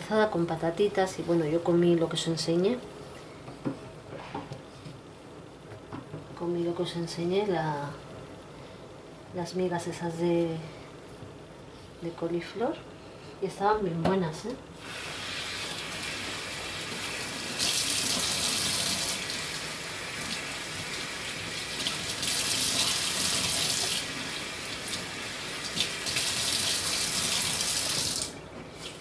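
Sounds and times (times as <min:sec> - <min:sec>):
tap water running into sink: 0:15.2 - 0:29.0.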